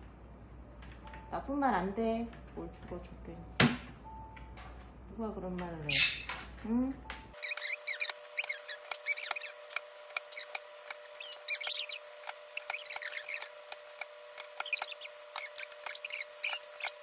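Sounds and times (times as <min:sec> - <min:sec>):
parrot chirps: 0:05.9 - 0:06.4, 0:07.4 - 0:09.6, 0:10.2 - 0:13.6, 0:14.4 - 0:17.0.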